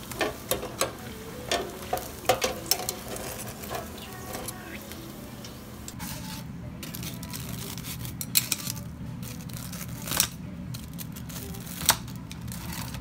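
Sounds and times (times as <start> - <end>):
blades and tongs clicking: 0.0 - 6.0
steady low hum: 0.0 - 13.0.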